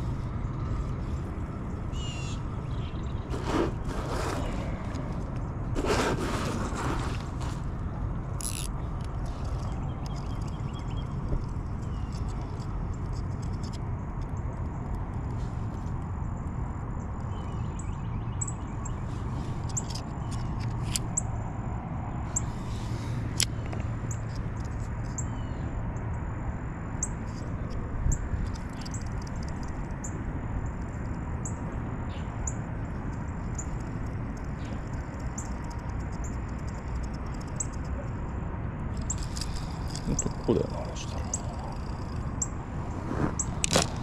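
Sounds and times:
small birds chirping: 0:00.4 - 0:04.8, 0:08.4 - 0:13.6, 0:17.1 - 0:21.3, 0:27.0 - 0:38.2, 0:38.9 - 0:43.6.

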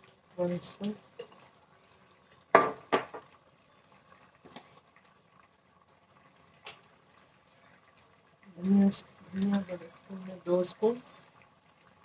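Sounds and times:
pot simmering: 0:00.0 - 0:12.0.

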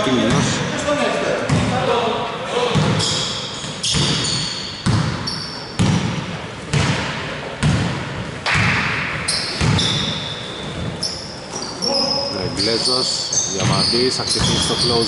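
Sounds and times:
sneakers squeaking: 0:02.6 - 0:15.0
basketball bouncing on hardwood: 0:03.9 - 0:08.0, 0:09.6 - 0:10.1.

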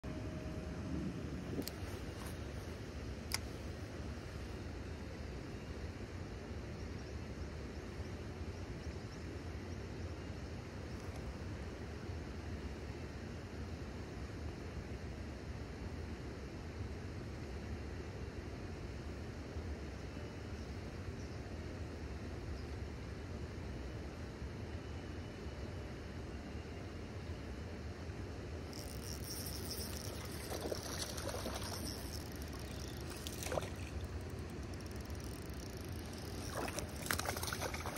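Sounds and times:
wind rumble on microphone: 0:00.0 - 0:02.8, 0:28.8 - 0:37.9
faint high ticks: 0:03.3 - 0:03.5, 0:28.7 - 0:37.9
fishing reel whirring: 0:28.6 - 0:37.9
fish splashing in water: 0:28.8 - 0:37.9.

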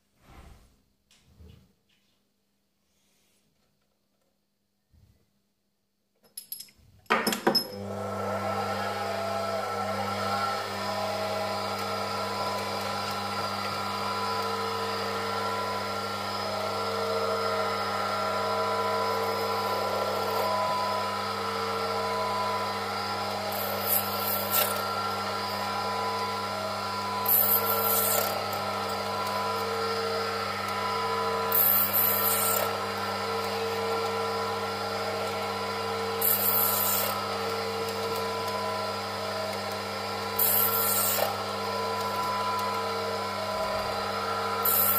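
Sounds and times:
lathe motor and gear hum: 0:07.8 - 0:44.9
cutting tool scraping hiss: 0:23.5 - 0:24.9, 0:27.2 - 0:28.6, 0:31.5 - 0:32.7, 0:36.2 - 0:37.2, 0:40.4 - 0:41.4, 0:44.6 - 0:44.9.

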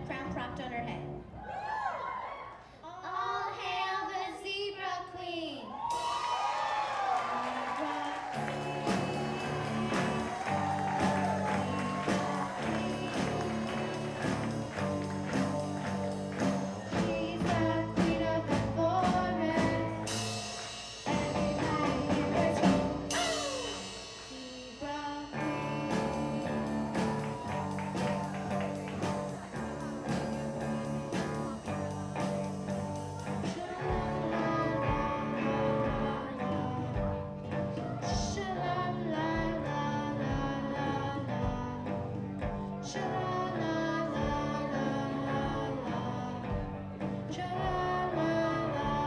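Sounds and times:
girl singing: 0:02.8 - 0:05.8, 0:06.4 - 0:20.3, 0:21.0 - 0:49.0
drum kit beat: 0:05.8 - 0:40.7
electric guitars: 0:06.0 - 0:49.0.

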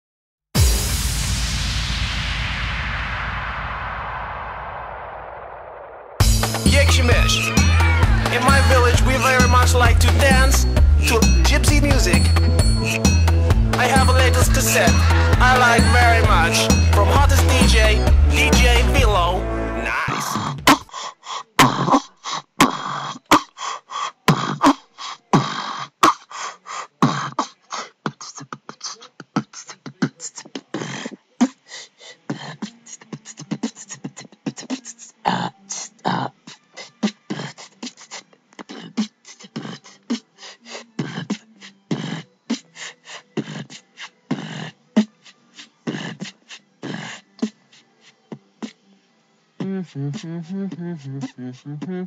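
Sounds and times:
person beatboxing: 0:06.4 - 0:19.2, 0:19.9 - 0:48.8, 0:49.6 - 0:52.0.

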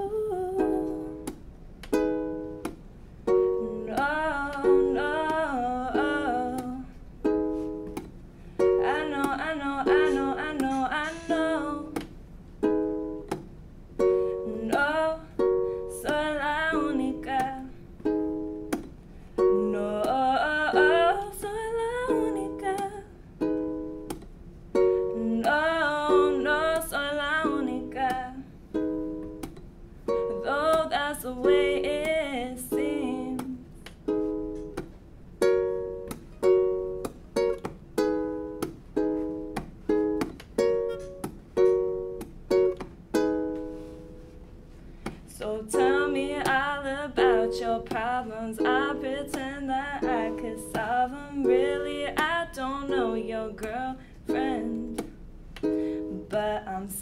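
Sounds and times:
woman singing: 0:00.0 - 0:01.2, 0:03.5 - 0:07.0, 0:08.7 - 0:12.1, 0:14.3 - 0:17.8, 0:19.4 - 0:23.1, 0:25.1 - 0:28.5, 0:30.3 - 0:33.7, 0:45.3 - 0:55.2, 0:56.0 - 0:57.0
ukulele strumming chords: 0:00.0 - 0:57.0.

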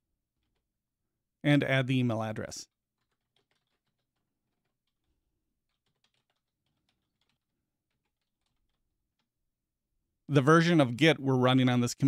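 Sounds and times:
faint computer keyboard typing: 0:00.4 - 0:00.7, 0:02.7 - 0:09.5.

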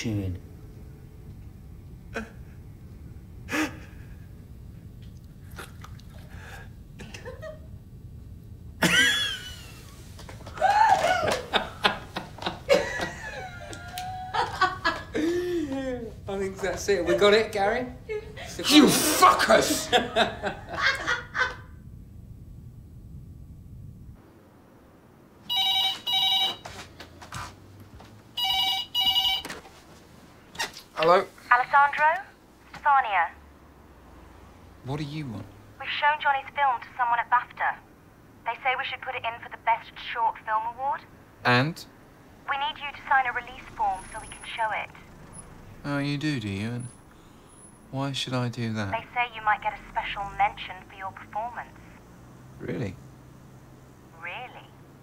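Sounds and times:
laughter: 0:07.0 - 0:07.7, 0:08.8 - 0:09.9, 0:10.6 - 0:15.8, 0:19.6 - 0:21.7
telephone double ring: 0:25.5 - 0:26.7, 0:28.4 - 0:29.6.

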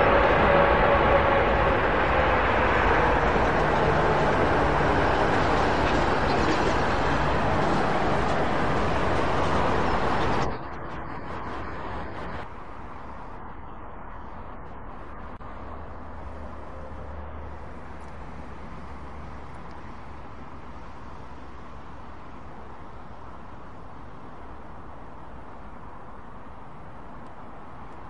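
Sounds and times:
jet engines running loud: 0:00.0 - 0:21.6.

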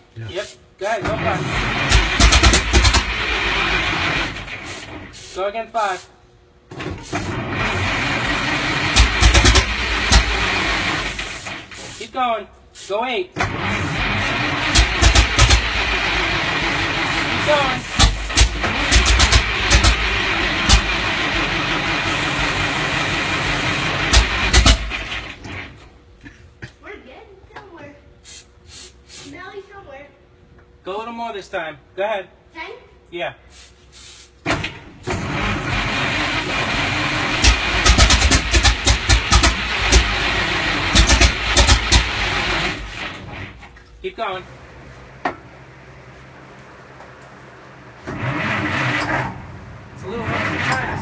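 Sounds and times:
engine being cranked: 0:01.1 - 0:05.0, 0:07.1 - 0:11.8, 0:13.4 - 0:25.7, 0:35.0 - 0:43.8, 0:48.0 - 0:51.0
sharp mechanical knocks: 0:01.9 - 0:03.2, 0:08.8 - 0:10.5, 0:14.7 - 0:15.8, 0:17.9 - 0:21.0, 0:24.1 - 0:25.2, 0:37.4 - 0:40.2, 0:40.8 - 0:43.8.

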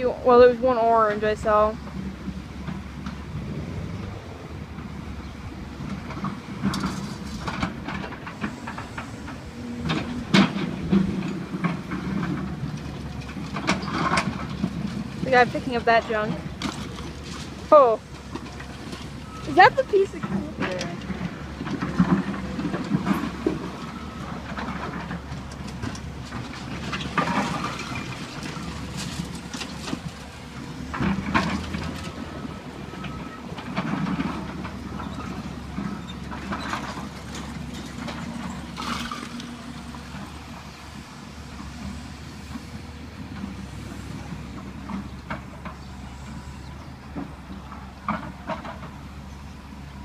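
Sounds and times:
excavator diesel engine running: 0:00.0 - 0:50.0
rubble crashing and clattering: 0:09.9 - 0:40.4.

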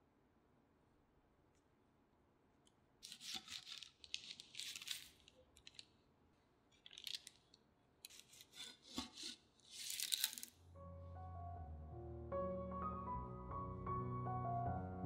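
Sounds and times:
knife sawing through sponge cake: 0:08.3 - 0:09.5.

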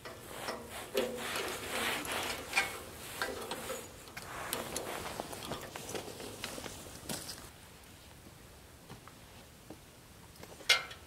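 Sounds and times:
hands and clothing rubbing: 0:00.2 - 0:07.5.

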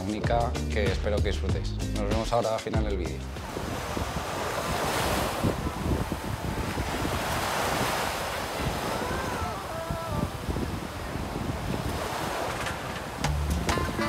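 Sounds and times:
wind buffeting microphone: 0:03.3 - 0:14.0
small waves breaking on sand: 0:03.4 - 0:13.2.

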